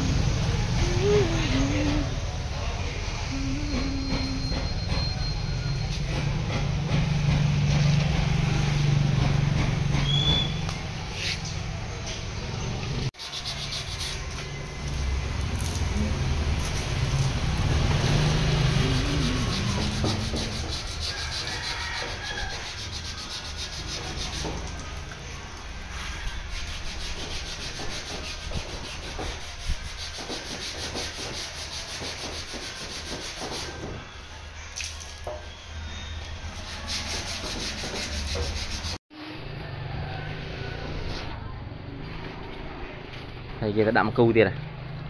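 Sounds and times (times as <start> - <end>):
sanding sponge rubbing: 13.2 - 14.5, 16.6 - 24.8, 25.9 - 33.9, 36.6 - 39.0.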